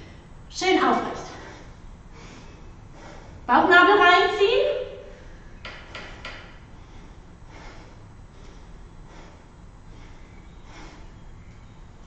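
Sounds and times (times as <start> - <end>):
woman breathing softly: 6.6 - 11.5.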